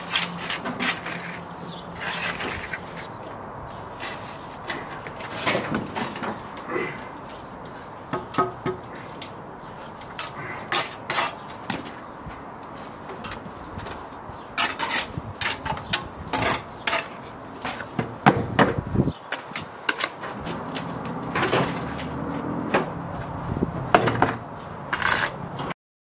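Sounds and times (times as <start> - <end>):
trowel scraping and tapping mortar: 24.9 - 25.7.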